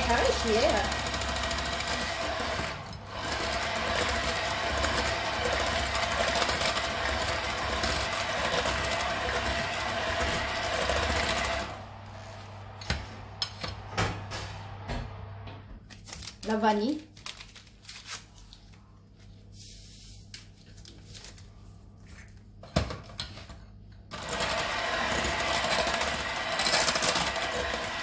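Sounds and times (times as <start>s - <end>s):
electric hand mixer running: 0.0s - 13.4s, 24.1s - 28.0s.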